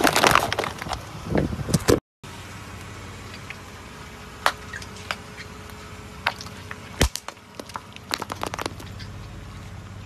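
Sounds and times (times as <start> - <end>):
crunchy object cracking under tyre: 0.0 - 2.0, 6.2 - 9.1
low hum of car: 0.0 - 10.0.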